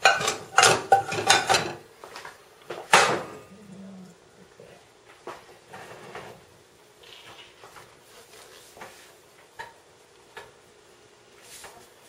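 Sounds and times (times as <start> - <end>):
kitchenware clicks and knocks: 0.0 - 1.8, 2.8 - 3.4.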